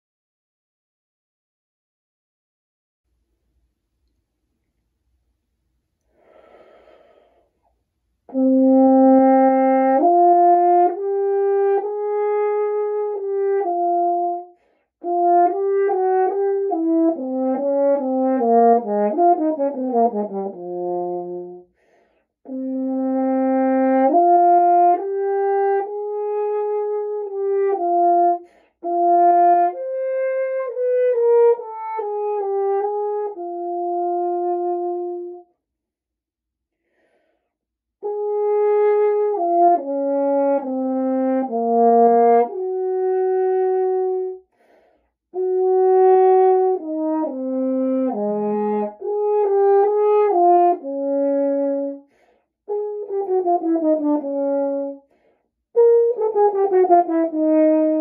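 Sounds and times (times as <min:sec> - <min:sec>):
french horn melody: 0:08.3 - 0:21.8, 0:22.4 - 0:35.5, 0:38.0 - 0:44.5, 0:45.3 - 0:58.0.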